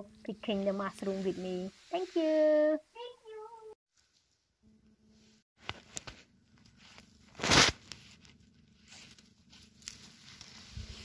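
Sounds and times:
light crackles of forest litter: 6.8 - 11.0
tearing rustle: 6.8 - 11.0
faint rustles: 8.0 - 11.0.

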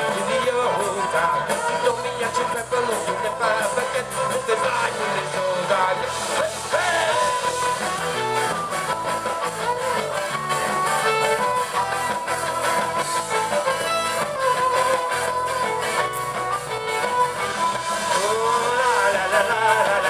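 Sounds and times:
guitar bending lead line: 0.0 - 20.0
live rock band playing: 0.0 - 20.0.

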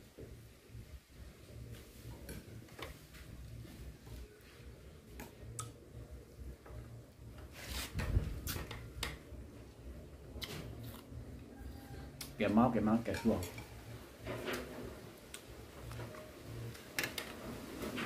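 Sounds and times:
person chewing food: 10.3 - 11.2.

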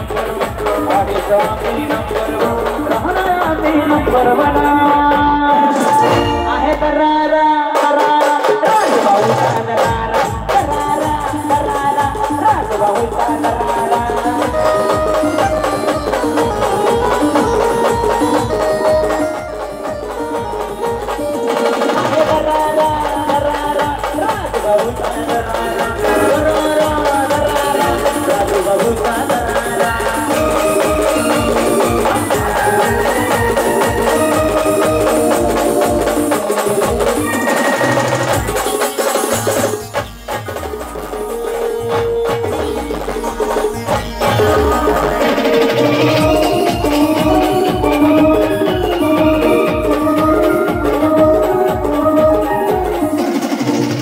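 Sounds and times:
heavy drum beat: 0.0 - 54.0
amplified keyboard melody: 13.0 - 54.0
held-note melody: 30.4 - 38.9.

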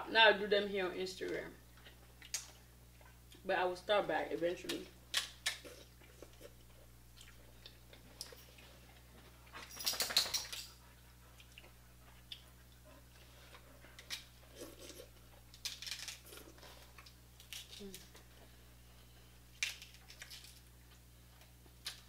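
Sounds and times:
chewing and sucking: 5.4 - 9.2, 10.9 - 15.6.

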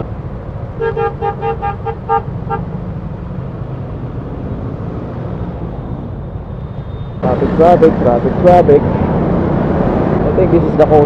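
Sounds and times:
road rumble in traffic: 0.0 - 11.0
vehicle horn beeps: 0.8 - 2.7.

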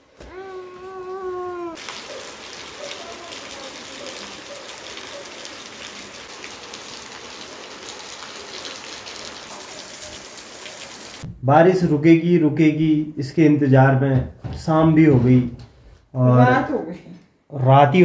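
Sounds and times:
steady rain falling: 0.0 - 11.3.

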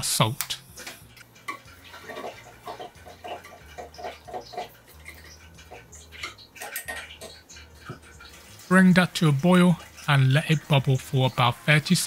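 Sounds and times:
sauce bubbling in saucepan: 0.6 - 11.8.

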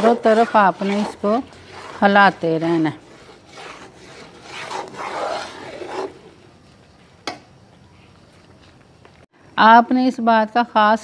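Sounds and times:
metal spatula scraping a pot: 0.0 - 6.4.

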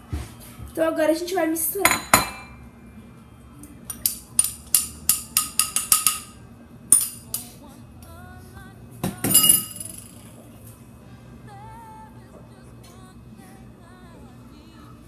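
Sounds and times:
faint background music: 0.0 - 15.0
utensil clinking glass bowl: 9.3 - 10.3.

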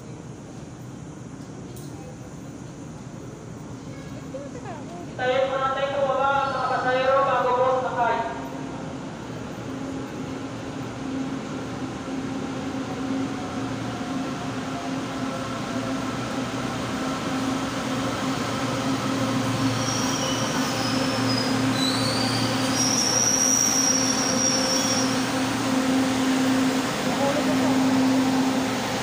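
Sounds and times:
train running hum: 0.0 - 29.0
brake and wheel squeal: 19.7 - 25.2.

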